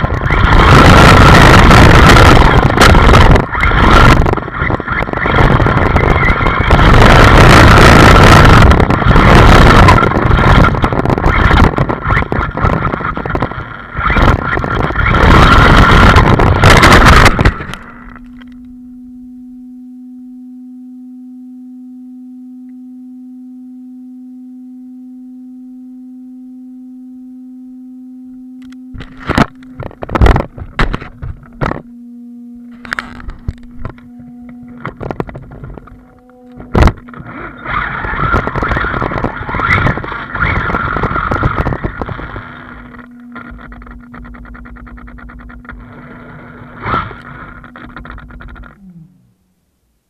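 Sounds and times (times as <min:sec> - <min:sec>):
electric motor whine: 0:00.0 - 0:49.7
low hum: 0:00.0 - 0:50.0
toy car rattling over rough ground: 0:34.8 - 0:48.8.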